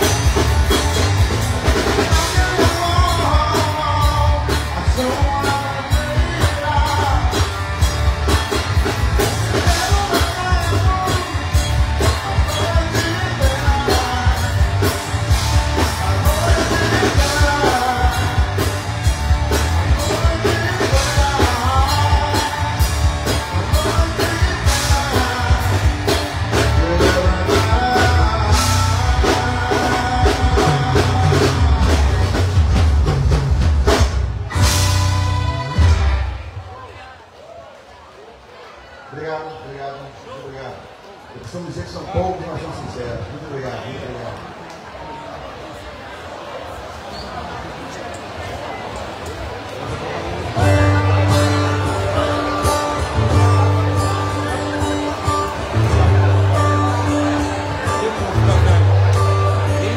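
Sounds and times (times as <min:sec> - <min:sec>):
drum kit steady beat: 0:00.0 - 0:36.6
live rock band playing: 0:00.0 - 0:36.9, 0:50.0 - 0:59.9
man singing: 0:01.7 - 0:07.9, 0:09.2 - 0:32.5, 0:50.6 - 0:59.9.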